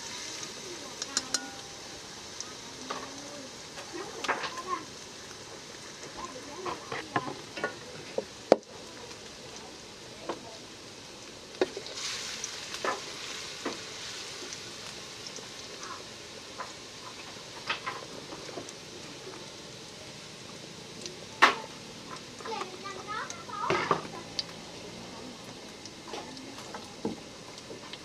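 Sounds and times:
wooden spatula stirring in wok: 0.0 - 10.6, 11.5 - 19.6
garlic sizzling in hot oil: 0.0 - 28.0.

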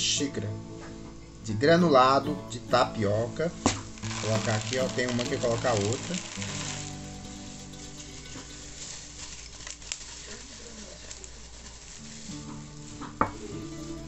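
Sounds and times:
faint background music: 0.0 - 14.0
grains pouring into plastic tub: 3.7 - 12.7.

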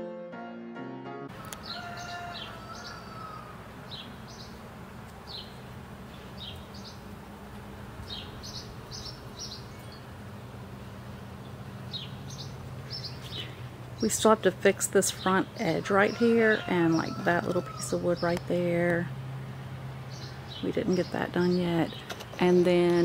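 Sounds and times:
birds chirping: 1.4 - 23.0.

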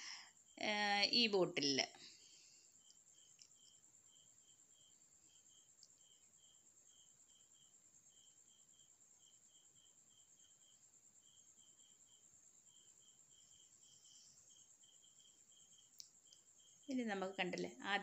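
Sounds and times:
insects buzzing and chirping: 0.0 - 18.0.

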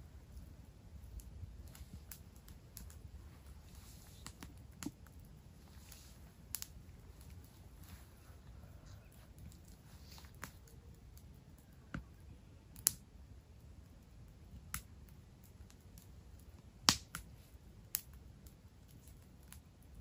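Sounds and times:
campfire crackling: 0.0 - 20.0
sharp fire pops: 16.8 - 17.3.

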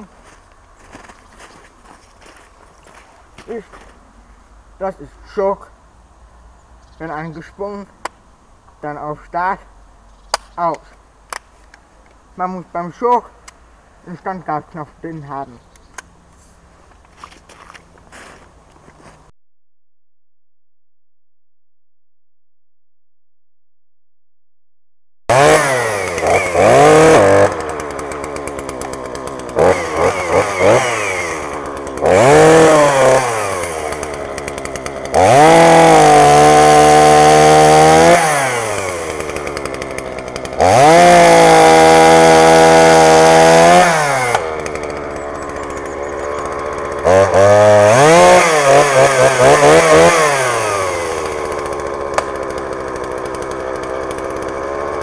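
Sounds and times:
chainsaw engine idling and revving: 25.3 - 55.0.

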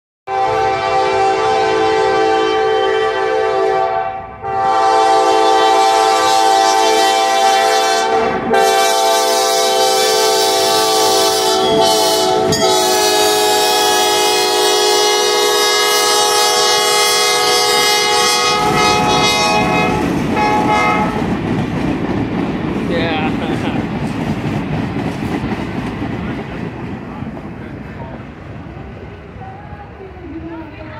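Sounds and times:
locomotive air horn blasts: 0.3 - 21.3
train wheels rumbling on rails: 5.3 - 30.9.

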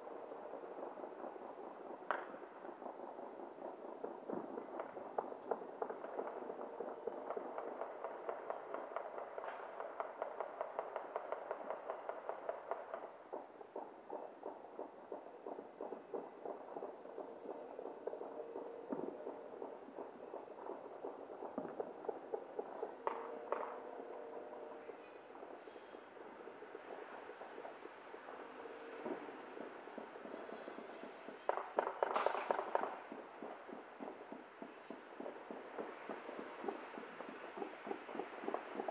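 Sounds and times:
distant firecracker pops: 31.4 - 33.0.

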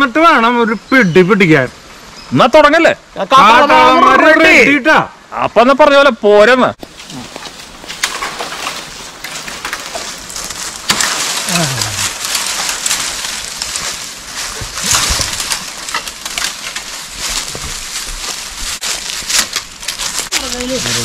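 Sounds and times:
twigs crackling and snapping: 6.8 - 21.0
footsteps crunching through leaves: 6.9 - 21.0.

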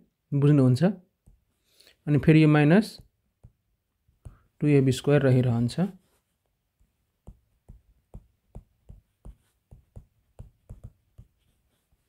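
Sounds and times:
stylus tapping on a tablet screen: 1.2 - 1.5, 3.0 - 4.6, 6.7 - 12.0.

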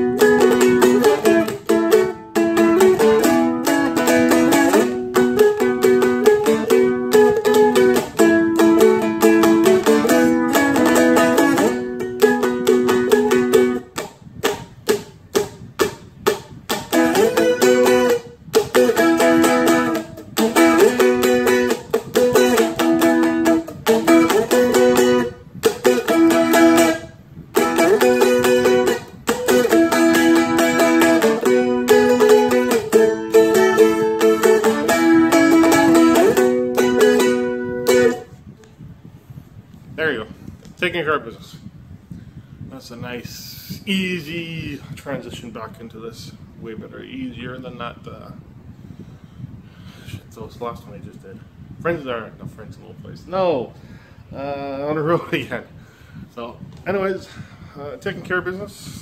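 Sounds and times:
dulcimer strummed: 27.6 - 38.3.

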